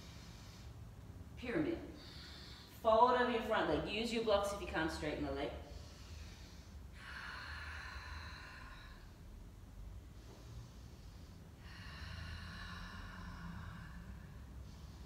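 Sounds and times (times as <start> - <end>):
woman breathing: 0.0 - 2.8, 5.5 - 15.0
low room hum: 0.0 - 15.0.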